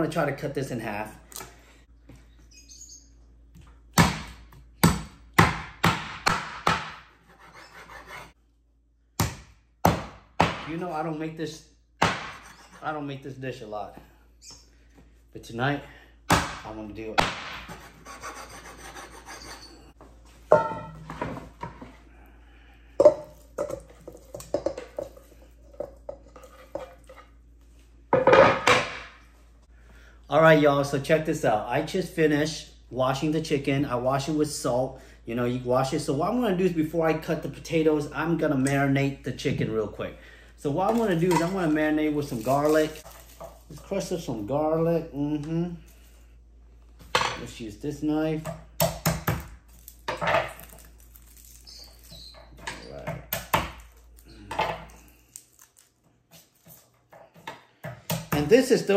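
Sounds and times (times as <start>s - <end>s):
cleaver chopping on wooden board: 4.0s - 7.1s, 9.2s - 10.7s, 12.0s - 12.5s.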